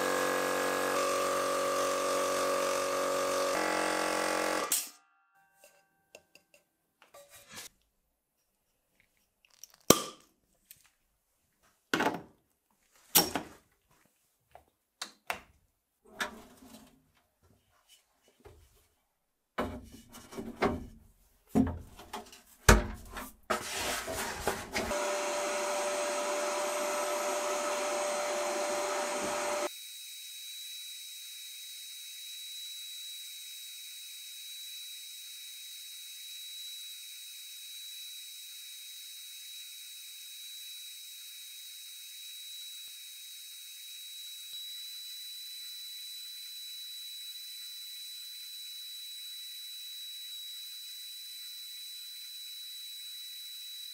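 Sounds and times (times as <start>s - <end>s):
small power tool humming: 0.0s - 4.9s, 24.9s - 53.9s
knocks and clatters of a tool: 11.9s - 12.3s.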